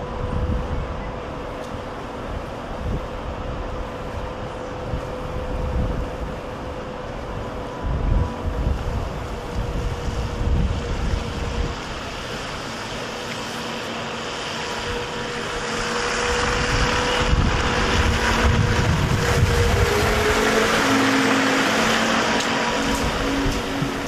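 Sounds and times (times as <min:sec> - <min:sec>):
wind buffeting microphone: 0:00.0 - 0:13.2, 0:14.2 - 0:24.0
trolleybus passing: 0:00.0 - 0:24.0
tyres swishing on slushy snow: 0:08.3 - 0:24.0.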